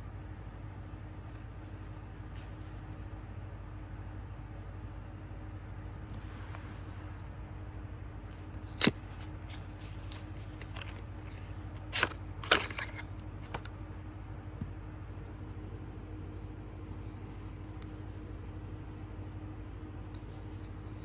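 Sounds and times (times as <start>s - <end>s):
steady low hum: 0.0s - 21.0s
plastic compact clicks and scrapes: 11.9s - 13.7s.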